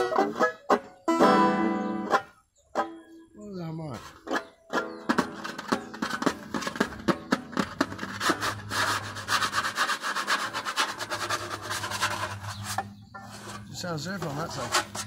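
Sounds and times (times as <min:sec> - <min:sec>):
banjo plucked notes: 0:00.0 - 0:08.2
scratchy rubbing on banjo: 0:03.9 - 0:15.0.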